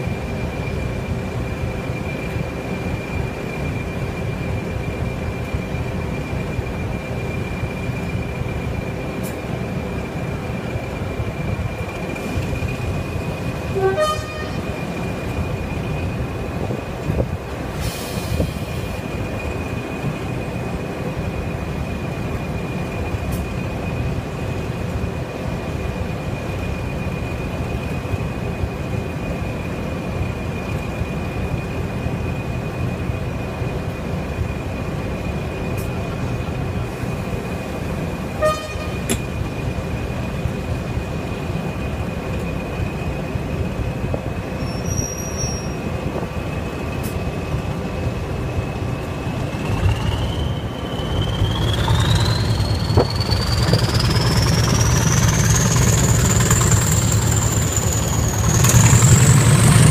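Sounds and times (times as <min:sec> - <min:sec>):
turbocharger whistle: 0:49.6 - 0:59.9.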